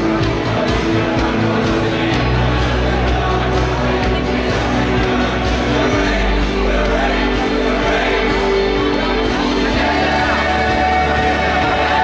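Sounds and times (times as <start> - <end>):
choir singing held chords: 0.0 - 12.0.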